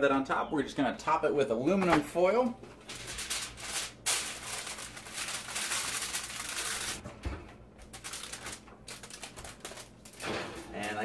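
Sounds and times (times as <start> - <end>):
aluminum foil crinkling: 2.7 - 7.0, 7.8 - 11.0.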